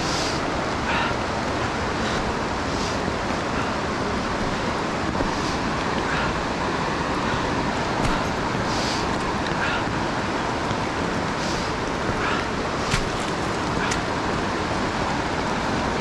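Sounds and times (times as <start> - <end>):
whitewater rushing: 0.0 - 16.0
footsteps on rocky trail: 7.6 - 9.7, 11.9 - 14.6.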